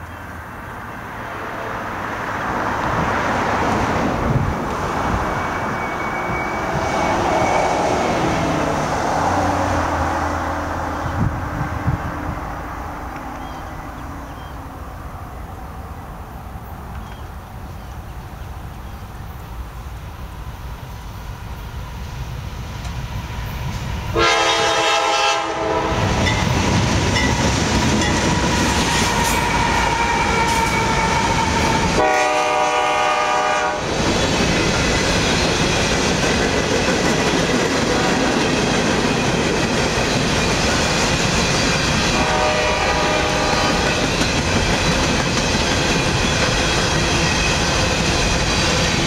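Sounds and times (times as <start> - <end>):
locomotive rumble: 0.7 - 19.3, 21.6 - 49.0
train horn blasts: 24.1 - 26.4, 28.6 - 33.9, 42.1 - 44.0
clatter of train wheels: 26.0 - 32.4, 33.8 - 49.0.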